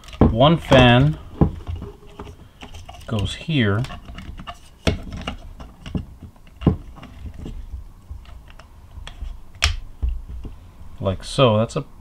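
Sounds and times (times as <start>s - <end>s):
plastic clicks and knocks: 0.0s - 10.6s.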